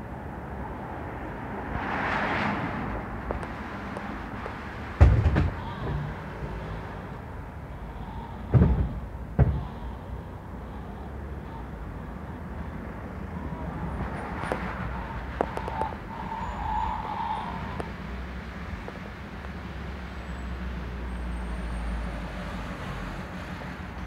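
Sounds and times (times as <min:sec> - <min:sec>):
low rumble of traffic: 0:00.0 - 0:24.0
dull thump: 0:05.0 - 0:06.0, 0:08.5 - 0:09.8.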